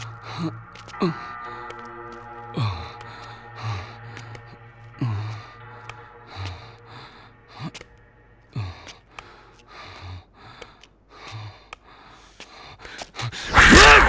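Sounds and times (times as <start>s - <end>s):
man breathing hard: 2.4s - 13.6s.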